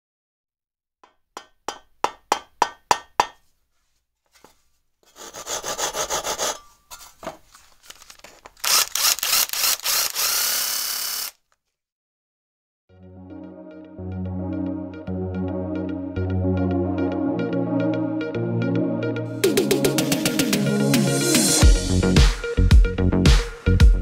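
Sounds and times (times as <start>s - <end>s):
rasping strokes on wood: 5.1s - 6.7s.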